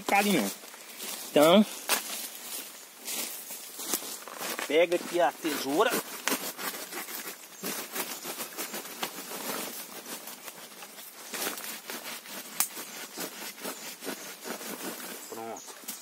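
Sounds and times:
dry leaves rustling and crackling: 0.0 - 16.0.

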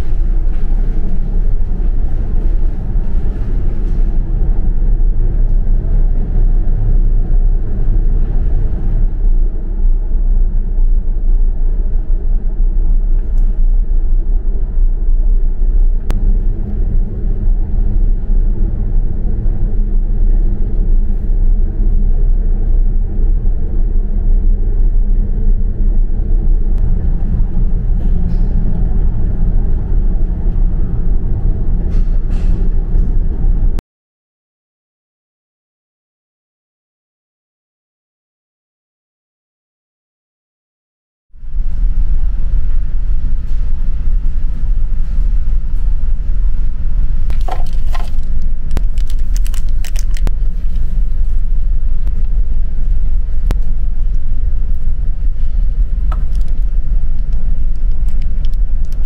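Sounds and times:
ship engines rumbling: 0.0 - 33.8, 41.4 - 59.0
faint steady hum tones: 41.4 - 59.0.

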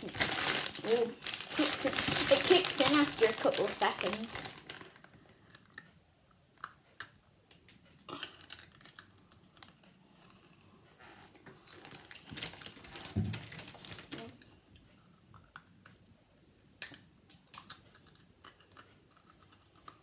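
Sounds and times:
person chewing crunchy snack: 8.0 - 10.8.

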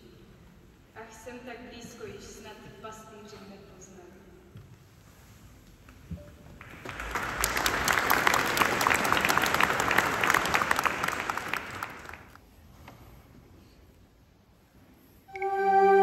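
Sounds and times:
audience applauding: 6.6 - 12.4.

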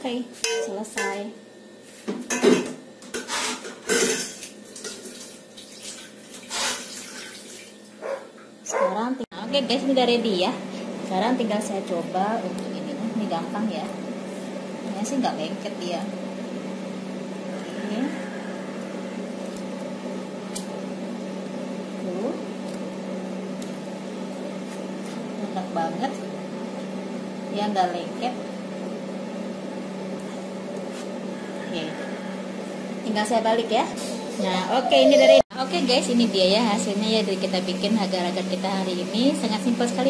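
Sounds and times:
steady mechanical hum: 0.0 - 40.0
kitchenware clattering: 0.5 - 1.2, 2.2 - 5.3.

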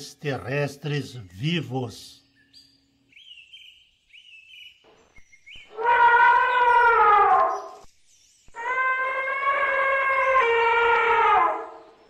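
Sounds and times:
faint bird chirps: 1.0 - 8.9
elephant trumpeting: 5.7 - 7.8, 8.6 - 11.9.

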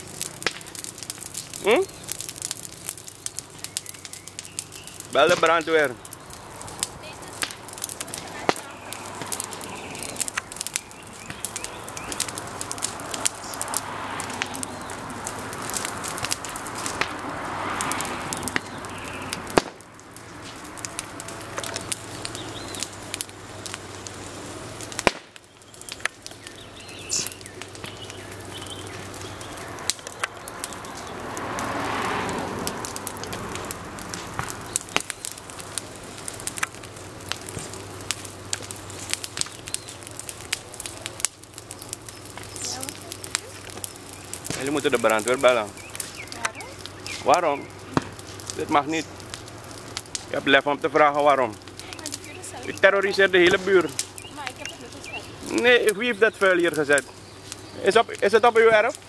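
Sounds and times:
fire crackling and popping: 0.0 - 59.0.

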